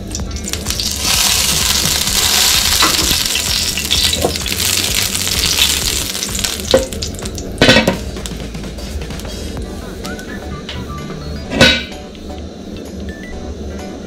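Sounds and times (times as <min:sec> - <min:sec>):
batter sizzling in frying pan: 0:00.0 - 0:08.5
utensil knocking on pan: 0:00.8 - 0:09.2.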